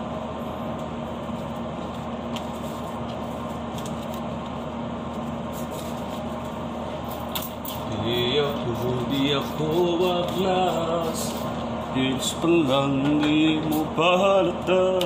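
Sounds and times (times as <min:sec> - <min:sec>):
ventilation hum and rush: 0:00.0 - 0:15.0.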